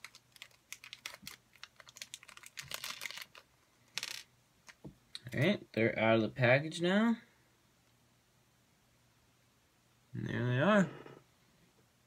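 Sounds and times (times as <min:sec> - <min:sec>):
plastic bag crinkling: 0:00.0 - 0:04.8.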